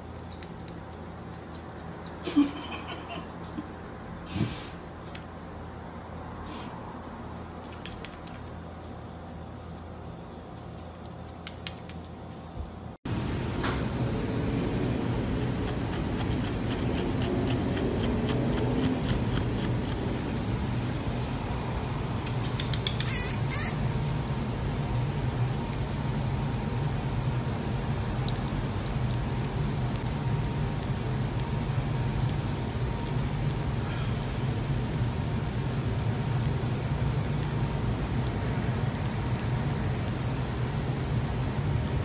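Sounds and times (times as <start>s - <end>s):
marmoset high-pitched squeaks: 22.4s - 24.5s.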